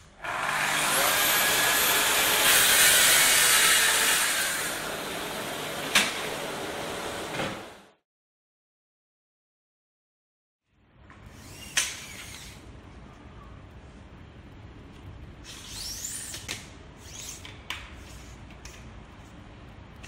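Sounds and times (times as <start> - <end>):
tape blade sliding whir: 11.3 - 12.6, 15.4 - 18.4.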